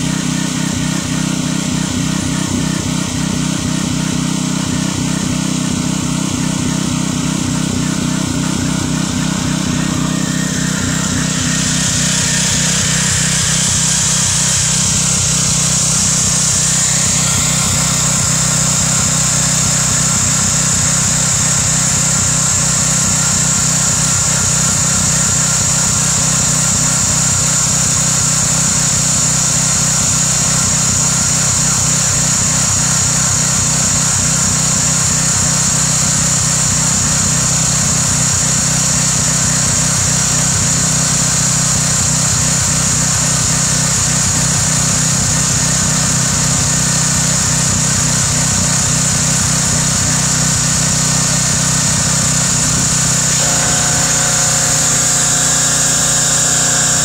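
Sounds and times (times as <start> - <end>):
pressure washer engine running: 0.0 - 57.0
water jet hissing into soil: 49.5 - 57.0.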